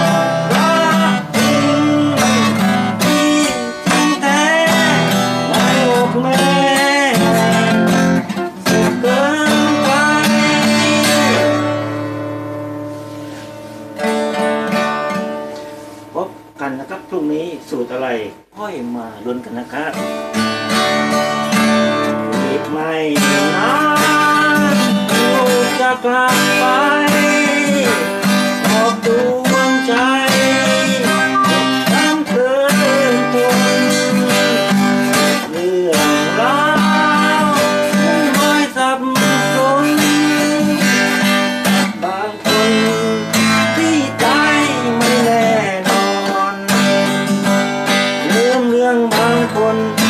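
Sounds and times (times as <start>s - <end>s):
acoustic guitar strumming: 0.0s - 50.0s
sliding melody line: 29.0s - 34.7s.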